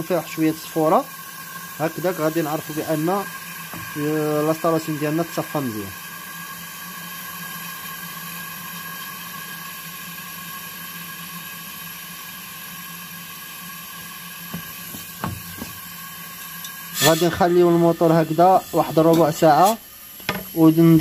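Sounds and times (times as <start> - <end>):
electric motor humming and whining: 13.9 - 21.0.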